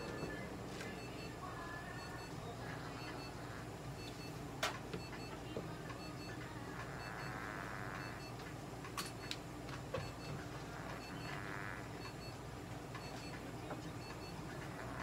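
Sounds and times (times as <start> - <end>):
equipment hum: 0.0 - 15.0
short electronic beeps: 7.0 - 8.4, 11.0 - 12.4.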